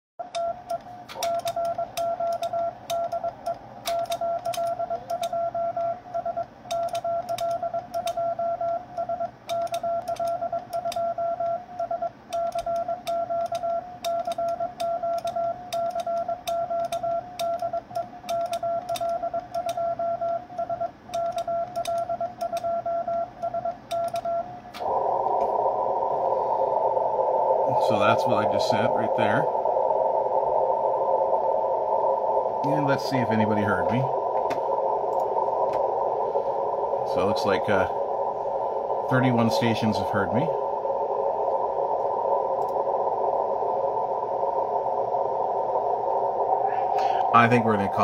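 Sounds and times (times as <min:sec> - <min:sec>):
sharp clicks: 0:00.3 - 0:20.4, 0:21.1 - 0:24.9, 0:42.6 - 0:42.8
morse code beep tone: 0:00.3 - 0:24.5
radio receiver hiss: 0:24.1 - 0:48.0.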